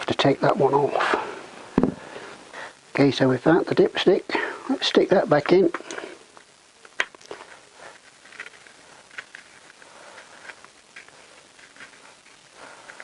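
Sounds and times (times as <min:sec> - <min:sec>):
cap ticking and rubbing on threads: 0:04.8 - 0:13.0.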